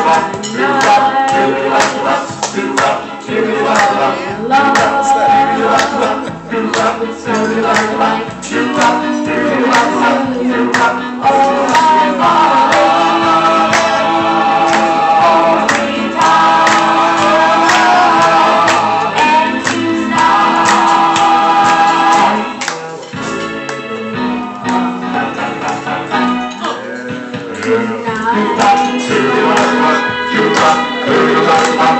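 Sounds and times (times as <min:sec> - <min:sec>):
music with a steady beat: 0:00.0 - 0:31.9
boy singing into a microphone: 0:26.5 - 0:31.9.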